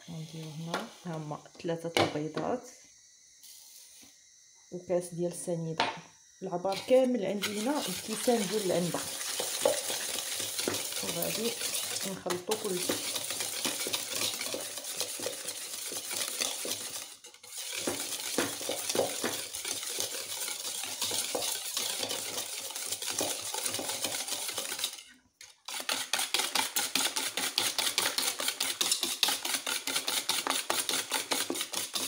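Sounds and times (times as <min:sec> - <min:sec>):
whisk clattering against bowl: 0:06.7 - 0:32.0.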